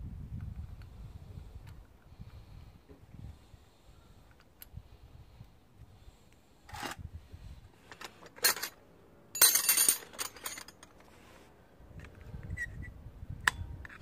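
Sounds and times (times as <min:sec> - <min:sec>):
steel bolts clinking: 0:07.9 - 0:08.8, 0:09.4 - 0:11.0.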